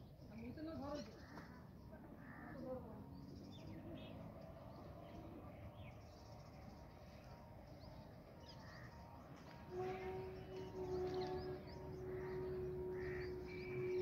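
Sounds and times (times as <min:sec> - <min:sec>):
bird calls and chirps: 0:05.0 - 0:14.0.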